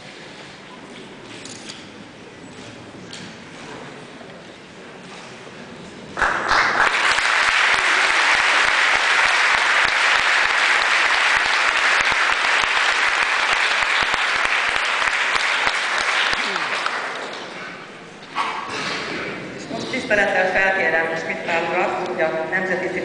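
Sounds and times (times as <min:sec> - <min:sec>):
audience applauding: 0:06.2 - 0:17.6.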